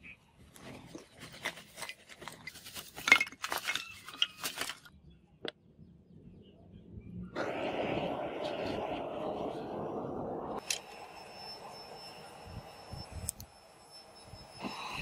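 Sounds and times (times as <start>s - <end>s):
fire rushing: 7.4s - 13.3s.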